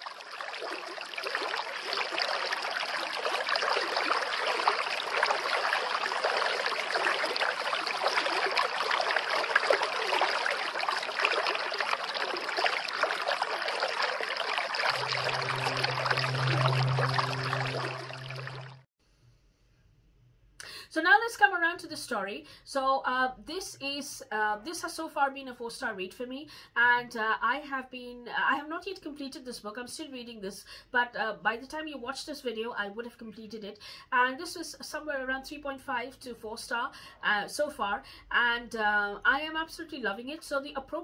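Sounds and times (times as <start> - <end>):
waterfall splashing into pond: 0.0 - 18.8
low steady hum: 14.9 - 18.9.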